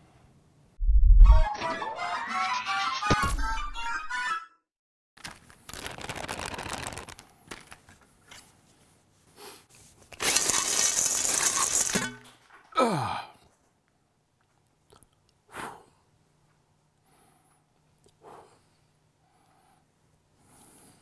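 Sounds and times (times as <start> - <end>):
sound falling steeply in pitch: 0.8 - 1.5.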